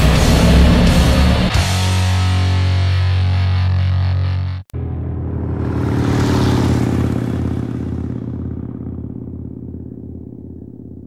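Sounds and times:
motorcycle engine idling: 5.1s - 11.0s.

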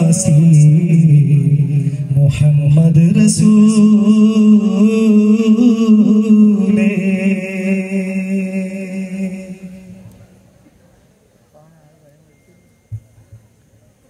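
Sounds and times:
voices singing a long note: 3.0s - 10.4s.

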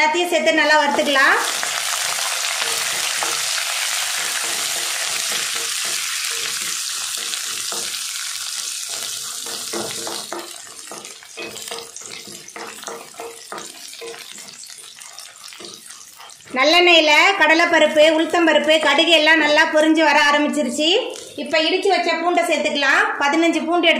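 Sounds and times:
seeds sizzling in oil: 0.8s - 19.9s, 20.6s - 21.7s
spatula scraping and tapping pan: 0.9s - 19.8s.

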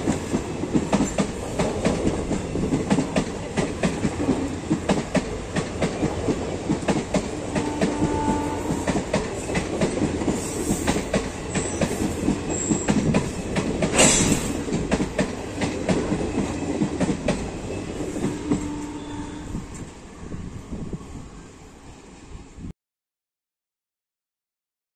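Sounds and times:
train wheels clattering over rail joints: 0.0s - 18.8s
train rushing past: 0.0s - 22.7s.

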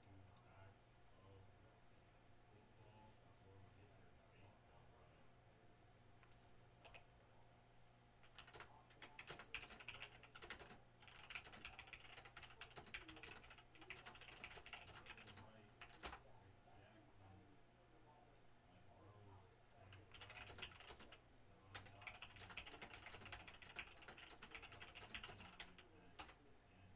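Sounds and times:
faint keyboard typing: 0.0s - 0.6s, 6.2s - 7.2s, 8.2s - 16.4s, 19.8s - 26.5s.

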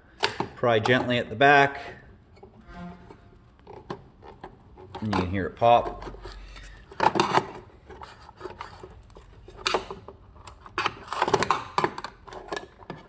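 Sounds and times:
plastic clicks and scrapes: 3.6s - 13.0s.

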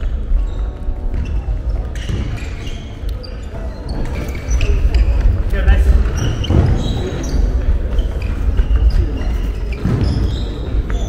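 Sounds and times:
echoing gym hubbub: 0.0s - 11.0s
sneakers squeaking: 0.0s - 11.0s
basketballs bouncing on hardwood: 7.9s - 11.0s.

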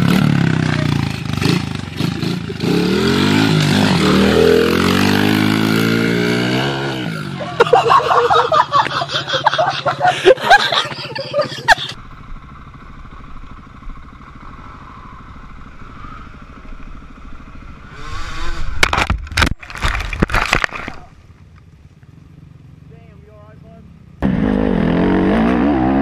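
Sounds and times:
dirt bike running steadily: 0.0s - 18.0s, 21.2s - 26.0s
dirt bike engines revving: 0.0s - 18.8s, 21.4s - 26.0s
bike crashing into undergrowth: 18.8s - 21.2s.

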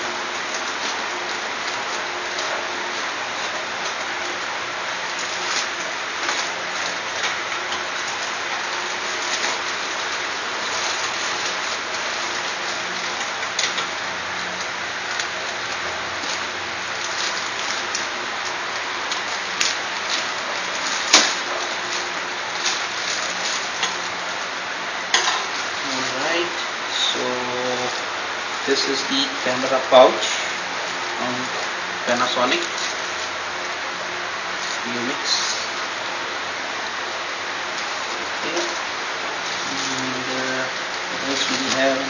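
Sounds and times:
plastic bag crinkling and tearing: 0.0s - 24.5s, 37.6s - 42.0s
steady hiss: 0.0s - 42.0s.

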